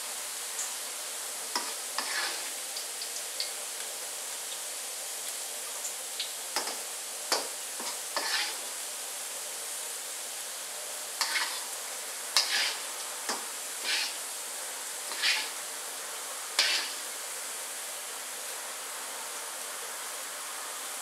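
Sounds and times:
oil sizzling in a wok: 0.0s - 21.0s
strainer swishing through oil: 1.6s - 2.6s, 7.8s - 8.7s, 11.2s - 11.8s, 12.4s - 13.0s, 13.8s - 14.2s, 15.0s - 15.6s, 16.6s - 17.1s.

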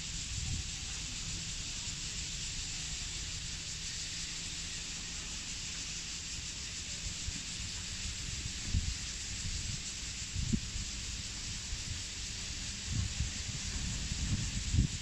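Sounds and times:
steady high hiss: 0.0s - 15.0s
wind buffeting microphone: 8.1s - 15.0s.

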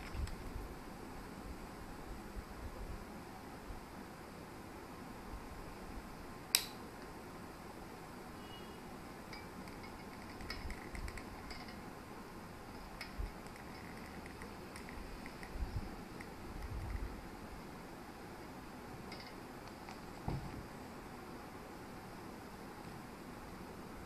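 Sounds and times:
sharp click: 6.5s - 7.1s.

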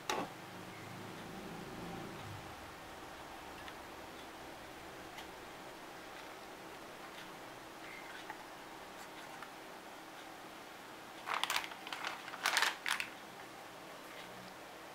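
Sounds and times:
plastic bag crinkling: 11.2s - 13.2s.

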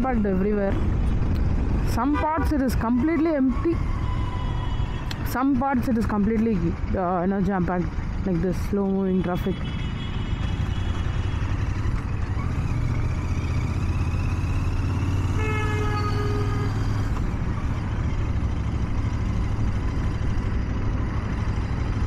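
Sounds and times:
motorcycle engine rumbling: 0.0s - 22.0s
vehicle horn honking: 15.3s - 16.9s.

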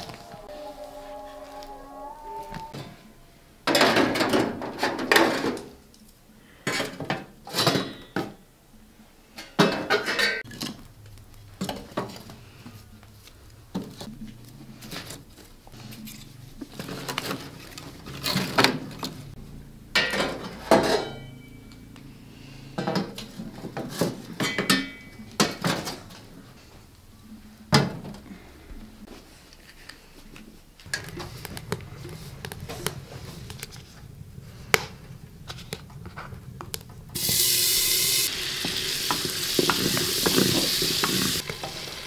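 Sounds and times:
metal clanking and scraping: 0.0s - 5.8s, 20.0s - 21.6s.

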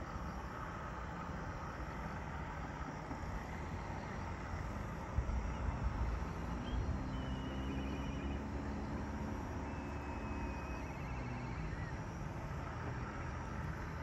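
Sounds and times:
low engine hum: 0.0s - 14.0s
high bird chirps: 6.6s - 8.5s.

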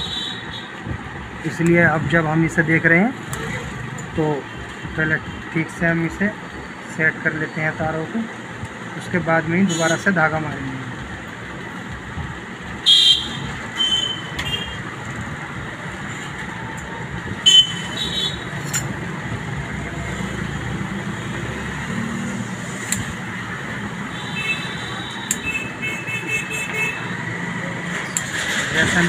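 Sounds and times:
traffic noise: 0.0s - 29.0s
vehicle horn toots: 12.8s - 14.8s, 17.4s - 18.5s, 24.1s - 27.1s.

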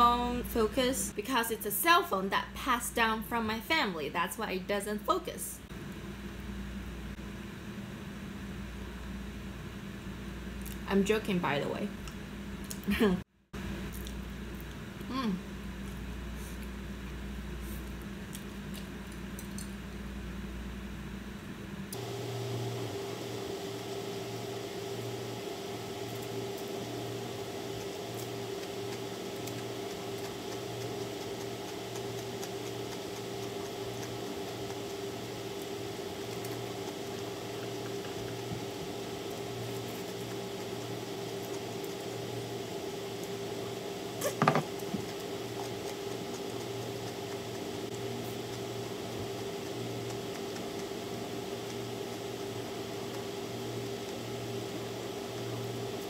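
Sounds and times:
steady low hum with hiss: 0.0s - 56.0s
slurping and chewing noodles: 27.4s - 42.5s, 44.2s - 54.4s.

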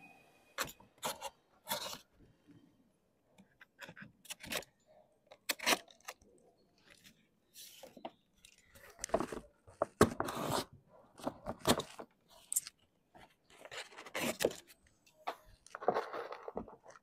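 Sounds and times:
paper crinkling and rustling: 13.2s - 17.0s.

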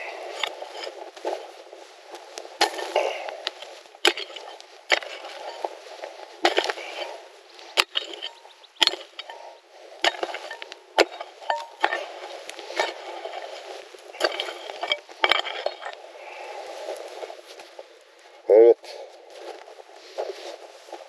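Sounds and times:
digging tool striking stony earth: 0.0s - 1.5s, 2.2s - 16.0s
soil scraping and scattering: 0.0s - 18.2s, 18.8s - 21.0s.

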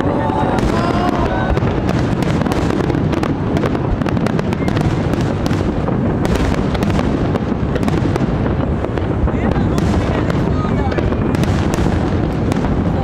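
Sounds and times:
fireworks cracking: 0.0s - 13.0s
low rumble of fireworks bursts: 0.0s - 13.0s.

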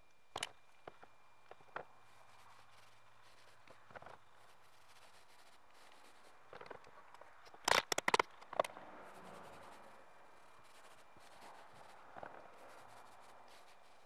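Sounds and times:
paint roller crackle and scrape: 10.6s - 14.0s.

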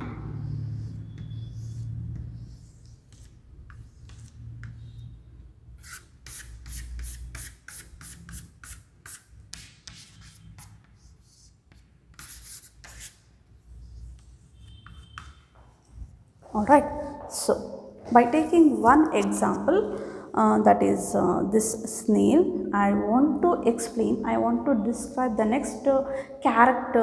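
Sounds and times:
chalk scratching on chalkboard: 0.1s - 5.0s, 5.8s - 16.2s.

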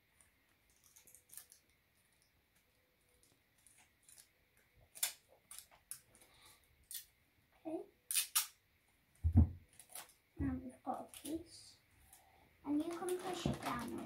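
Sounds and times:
scissors snipping tape: 8.1s - 8.5s.

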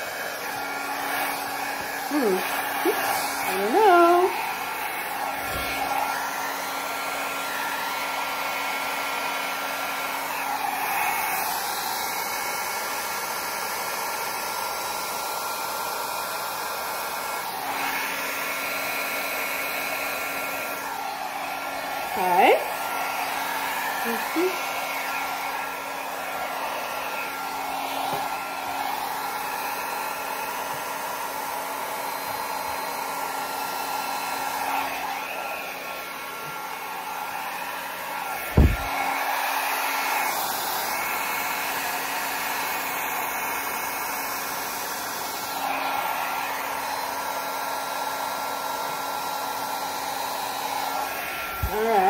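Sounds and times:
hair dryer running: 0.0s - 52.0s.

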